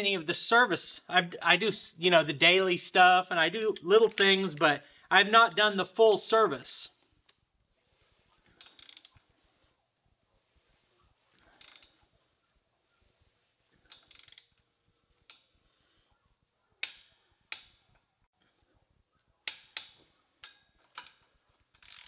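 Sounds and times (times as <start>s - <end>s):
ratchet wrench clicking: 8.6s - 9.1s, 11.6s - 12.0s, 13.8s - 14.6s, 19.4s - 22.0s.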